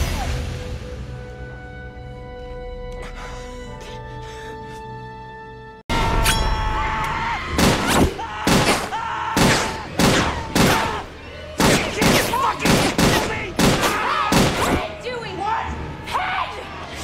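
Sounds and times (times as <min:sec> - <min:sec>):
rapid gunshots: 0:07.6 - 0:11.0, 0:11.6 - 0:14.9.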